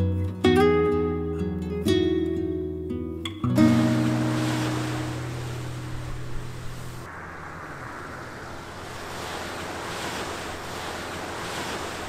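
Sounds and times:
music: 0.0s - 6.0s
surf washing onto beach: 3.6s - 12.0s
wind buffeting microphone: 4.2s - 12.0s.

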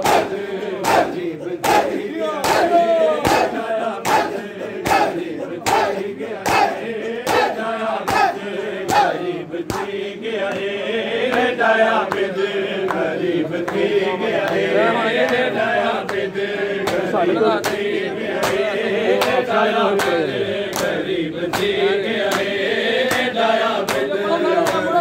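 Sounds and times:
hands beating on chests: 0.0s - 10.0s
men chanting in unison: 0.0s - 25.0s.

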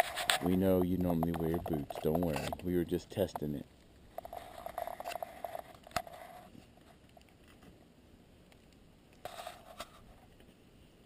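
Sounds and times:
tree stand creaking and clicking: 0.0s - 7.8s.

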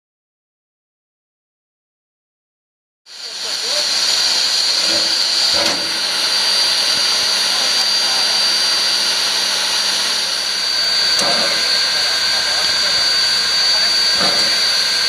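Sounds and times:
steam hissing from locomotive: 3.1s - 15.0s.

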